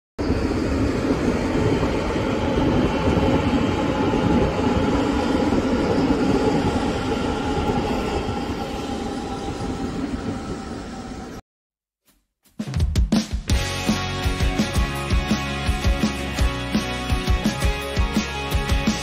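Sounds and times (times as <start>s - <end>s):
train rumbling on rails: 0.2s - 11.4s.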